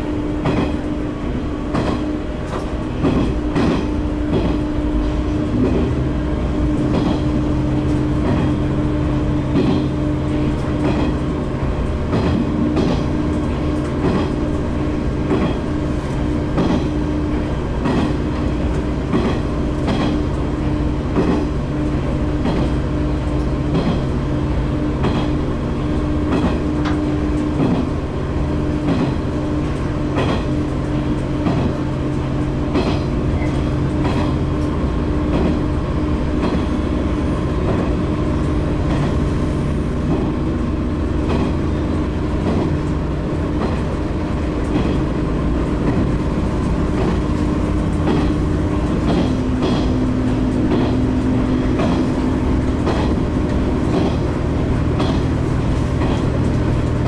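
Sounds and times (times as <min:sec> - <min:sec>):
railcar engine drone: 0:00.0 - 0:57.0
wheels clacking over rail joints: 0:28.8 - 0:57.0.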